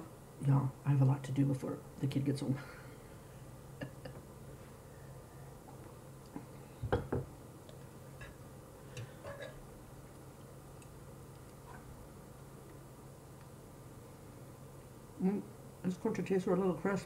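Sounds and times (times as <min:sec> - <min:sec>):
faint low hum: 0:00.0 - 0:17.0
cup knocking on table: 0:06.8 - 0:07.3.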